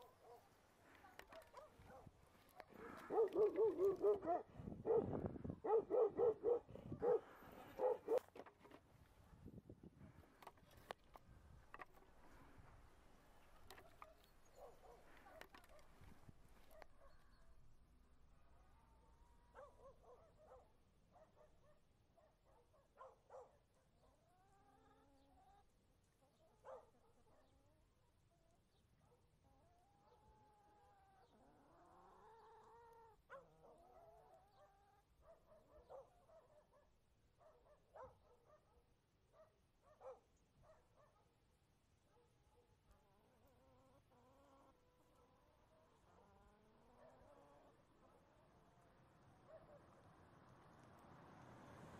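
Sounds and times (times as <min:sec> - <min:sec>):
faint animal cries: 0:24.2 - 0:25.6, 0:29.5 - 0:35.0.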